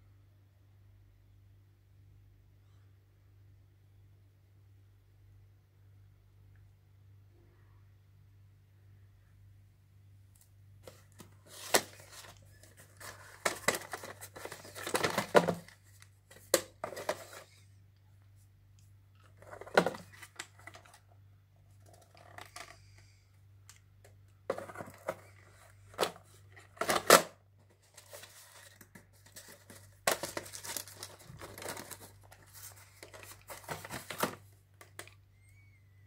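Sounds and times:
plastic cassettes clicking and knocking: 0:10.8 - 0:17.4, 0:19.2 - 0:21.0, 0:24.0 - 0:35.2.

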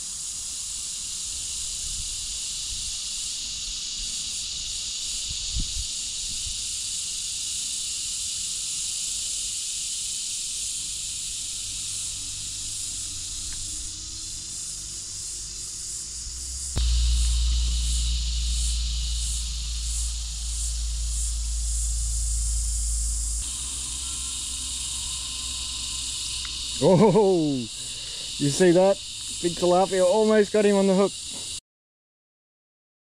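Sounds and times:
insect chorus hiss: 0:00.0 - 0:31.6
low thump: 0:16.7 - 0:27.2.

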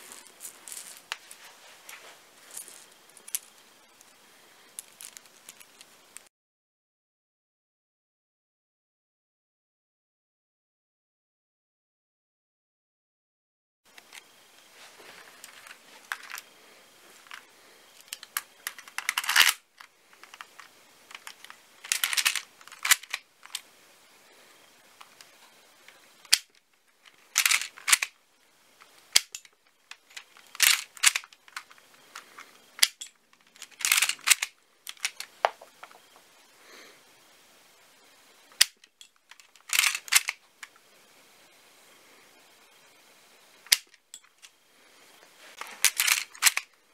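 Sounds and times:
plastic toy gun clacks: 0:21.1 - 0:23.6, 0:26.3 - 0:26.5, 0:27.4 - 0:28.1, 0:30.5 - 0:31.7, 0:32.8 - 0:36.0, 0:38.6 - 0:40.4, 0:43.7 - 0:44.0, 0:45.8 - 0:46.6.

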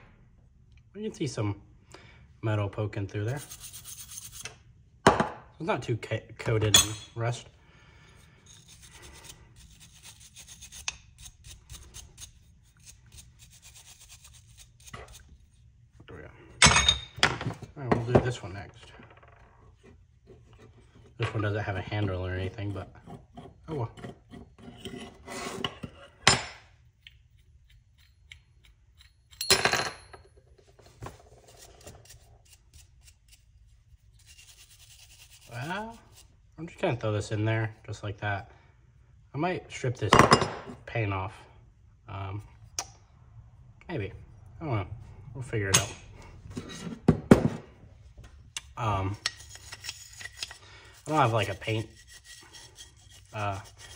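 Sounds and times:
wire brush scrubbing metal: 0:03.2 - 0:04.5, 0:08.4 - 0:15.3, 0:31.5 - 0:36.3, 0:48.9 - 0:53.9
metallic clatter with ring: 0:29.0 - 0:30.5.

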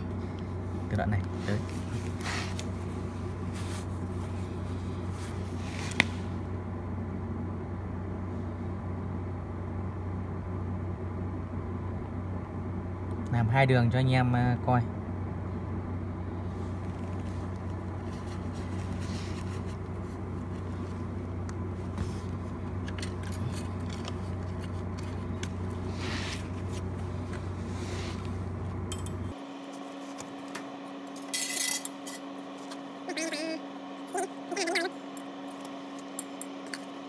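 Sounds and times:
faint steady hum: 0:00.0 - 0:37.0
welding arc humming and hissing: 0:16.4 - 0:37.0.

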